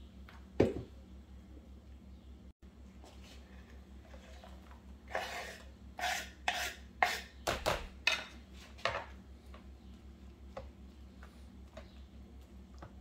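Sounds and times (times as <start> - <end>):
knife scraping cutting board: 5.1 - 7.4.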